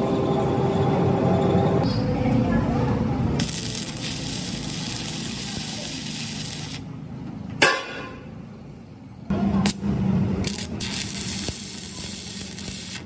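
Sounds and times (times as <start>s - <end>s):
welding arc crack: 3.4s - 6.9s, 9.6s - 13.0s
welding arc sputtering and crackling: 3.4s - 6.9s, 9.6s - 13.0s.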